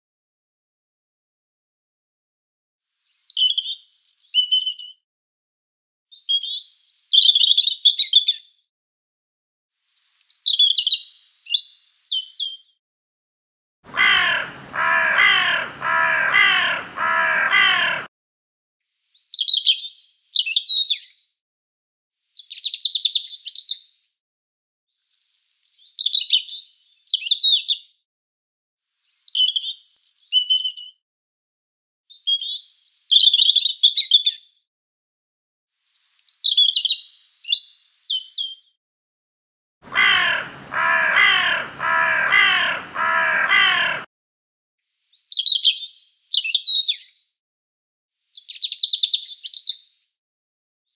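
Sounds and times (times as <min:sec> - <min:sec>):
harsh bird calls: 0:13.9 - 0:18.1, 0:39.9 - 0:44.1
robin song: 0:13.9 - 0:18.1, 0:39.8 - 0:44.1.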